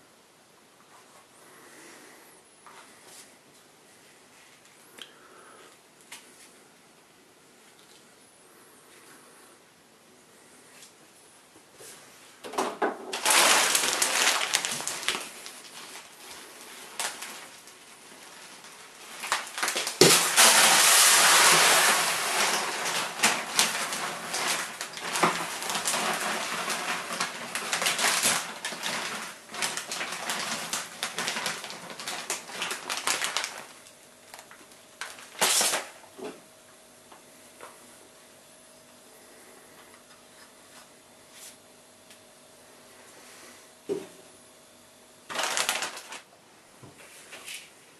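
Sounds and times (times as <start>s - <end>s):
plastic bag crinkling: 12.5s - 36.2s, 45.2s - 46.4s
grain pouring into bucket: 13.1s - 36.0s, 45.3s - 46.3s.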